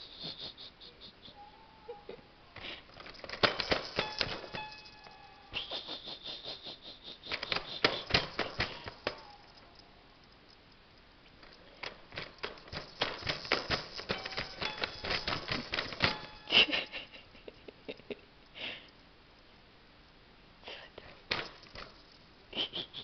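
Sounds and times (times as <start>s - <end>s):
plastic toy piano keys clicking: 3.0s - 5.2s, 7.3s - 9.3s, 11.4s - 16.5s.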